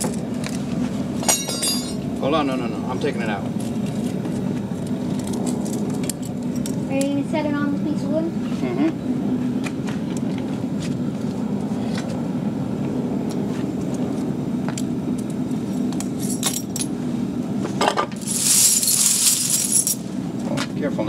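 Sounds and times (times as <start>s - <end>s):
metal tags clinking: 1.2s - 2.0s, 16.1s - 16.9s, 18.2s - 20.1s.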